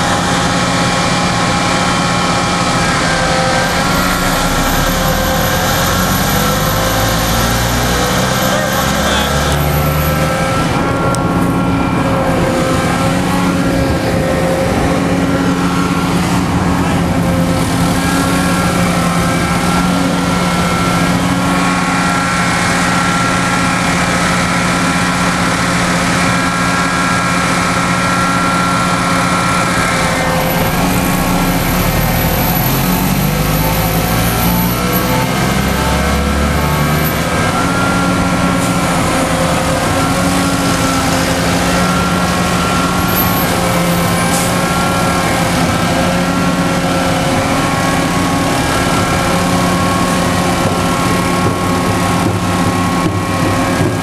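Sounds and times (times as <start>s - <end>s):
diesel truck engines idling: 0.0s - 54.0s
engine shifting in pitch: 0.0s - 54.0s.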